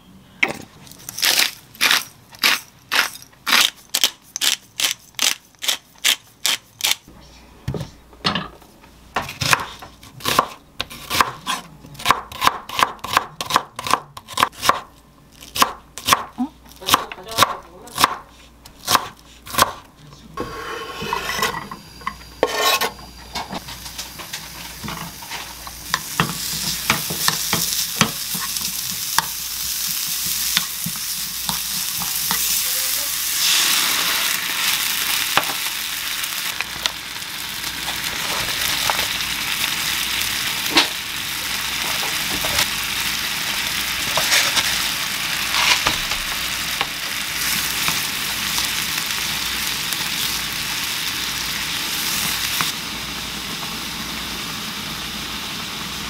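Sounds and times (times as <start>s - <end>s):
knife chopping on wooden board: 9.2s - 14.9s, 15.6s - 16.3s, 18.8s - 19.8s
onion sizzling in a frying pan: 20.4s - 56.0s.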